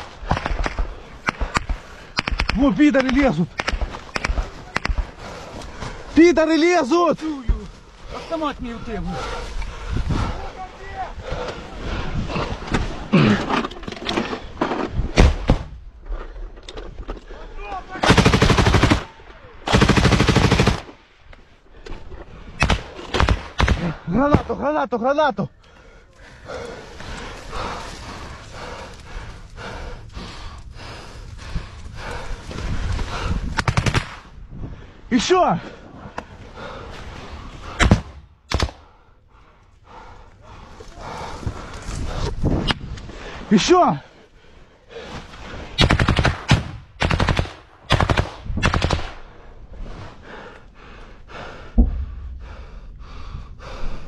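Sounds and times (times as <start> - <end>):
heavy breathing: 4.2 - 6.2, 7.7 - 14.6, 25.5 - 33.6, 34.5 - 45.8, 49.3 - 54.0
automatic gunfire bursts: 18.0 - 19.1, 19.7 - 20.8
rapid gunfire: 18.0 - 19.1, 19.7 - 20.9, 22.6 - 24.0, 45.8 - 49.2
faint pulsing sounds: 49.1 - 54.0.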